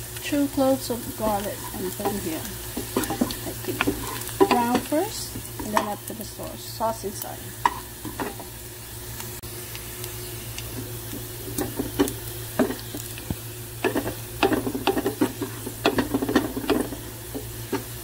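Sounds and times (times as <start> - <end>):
garlic sizzling in oil: 0.0 - 18.0
wooden spatula stirring and scraping: 1.0 - 6.0, 10.7 - 18.0.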